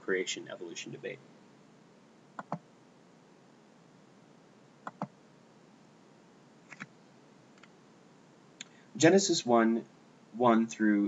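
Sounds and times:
faint steady hiss: 0.0s - 11.0s
mouse button clicking: 4.9s - 5.1s.

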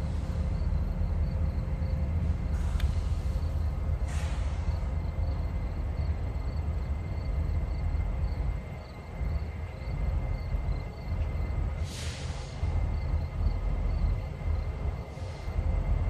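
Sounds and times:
diesel locomotive engine rumble: 0.0s - 16.0s
short hiss: 11.8s - 12.7s.

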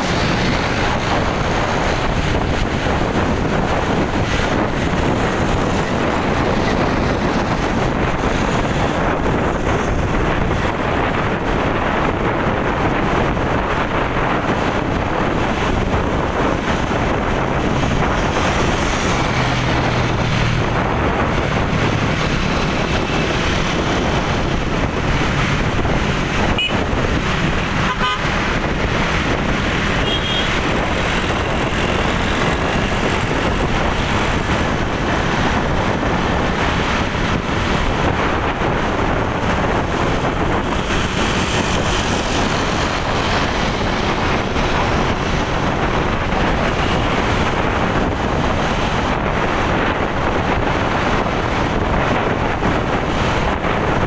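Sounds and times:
road traffic rushing: 0.0s - 54.0s
wind noise: 0.0s - 54.0s
vehicle horn toots: 26.5s - 26.8s, 27.8s - 28.4s, 30.0s - 30.6s.

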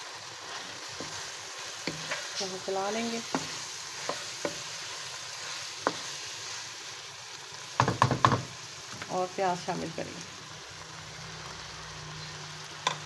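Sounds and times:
meat sizzling in oil: 0.0s - 13.0s
spatula tapping wok: 0.9s - 4.8s, 5.8s - 6.2s, 7.8s - 8.5s.

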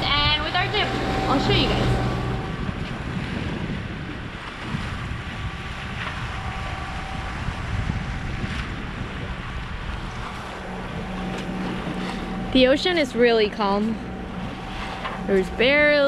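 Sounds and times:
low engine drone: 0.0s - 16.0s
water rushing along hulls: 0.0s - 16.0s
wind buffeting microphone: 0.0s - 16.0s.

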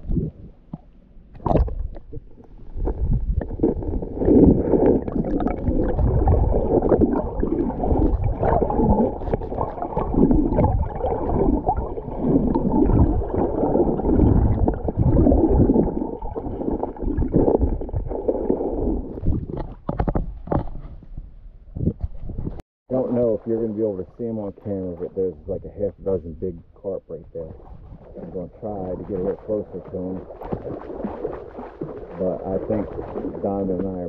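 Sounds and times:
muffled underwater river gurgling: 0.0s - 20.6s, 22.4s - 34.0s
dog moving through water: 27.5s - 34.0s.

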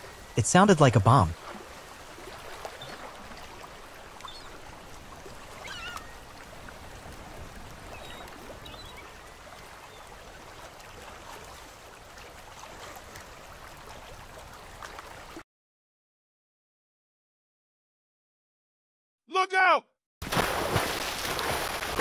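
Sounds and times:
river water flowing and lapping: 0.0s - 15.4s, 20.2s - 22.0s.

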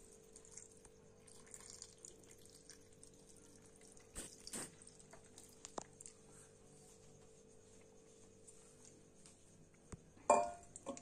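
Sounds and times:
juice trickling into a glass jar: 0.0s - 6.3s
light glass clink: 10.3s - 11.0s.

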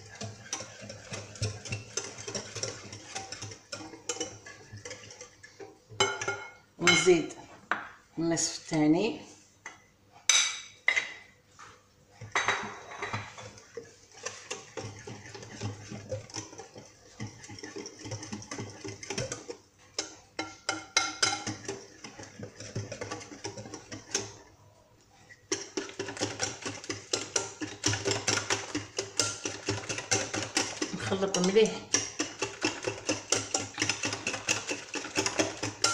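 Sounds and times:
whisk clicking against glass bowl: 0.0s - 5.4s, 12.3s - 24.4s, 25.5s - 35.9s.

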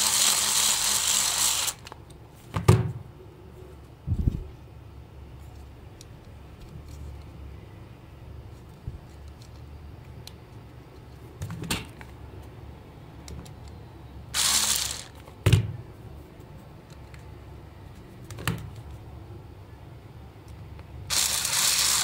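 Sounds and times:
electric screwdriver running: 0.0s - 1.9s, 14.4s - 15.2s, 21.1s - 22.0s.

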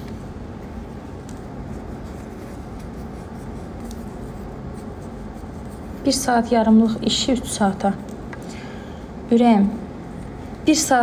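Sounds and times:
low background hum: 0.0s - 11.0s
paper wipe rubbing fingernails: 0.6s - 6.2s.

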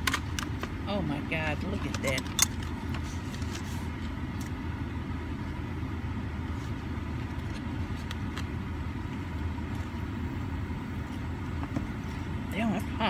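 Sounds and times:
car idling: 0.0s - 13.0s.

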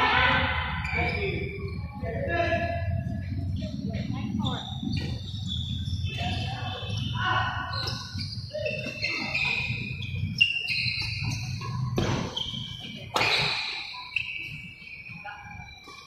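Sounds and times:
sneakers squeaking on court: 3.2s - 16.0s
racket hitting shuttlecock: 13.1s - 13.7s.

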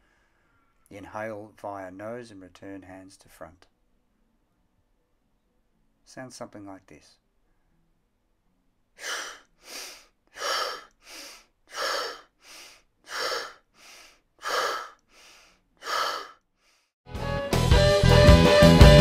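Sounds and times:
forceful hissing exhales: 9.0s - 16.8s
soft nasal inhales: 9.0s - 17.0s
guitar music: 17.1s - 19.0s.

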